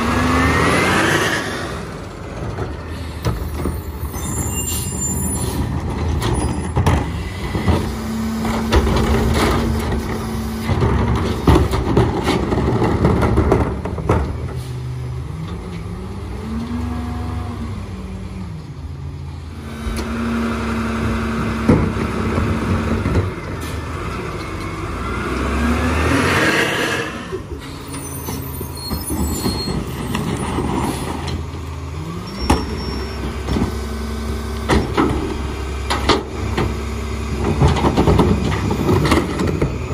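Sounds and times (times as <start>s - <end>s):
garbage truck diesel engine revving: 0.0s - 3.2s, 14.6s - 28.7s
clanks and knocks of refuse: 2.2s - 4.5s, 5.4s - 15.9s, 21.0s - 25.0s, 27.3s - 39.9s.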